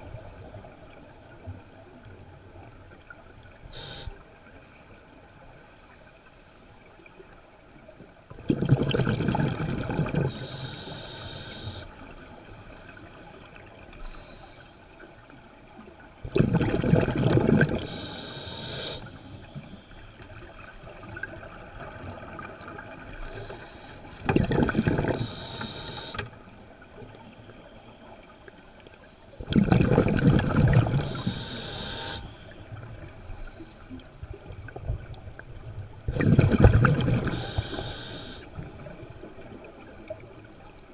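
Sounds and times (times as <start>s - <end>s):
regulator hiss on inhale: 3.6s - 4.2s, 10.3s - 15.0s, 17.8s - 20.2s, 23.2s - 24.2s, 25.1s - 26.4s, 31.0s - 34.1s, 37.2s - 39.0s
exhaled bubbles gurgling: 8.3s - 12.1s, 16.2s - 19.1s, 20.3s - 26.2s, 29.4s - 33.3s, 34.2s - 40.6s.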